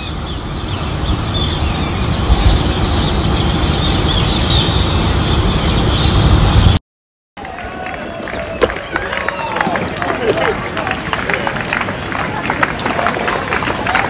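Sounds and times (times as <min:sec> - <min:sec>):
birds chirping: 0:00.0 - 0:06.6
low city rumble: 0:00.0 - 0:06.8, 0:07.4 - 0:14.0.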